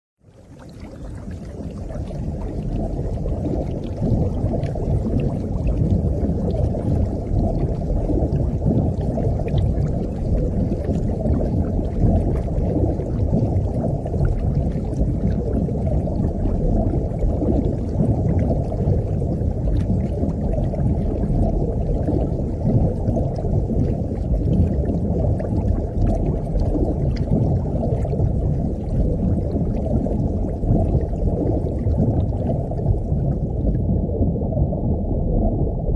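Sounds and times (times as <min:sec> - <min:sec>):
muffled underwater wash: 0:00.2 - 0:35.9.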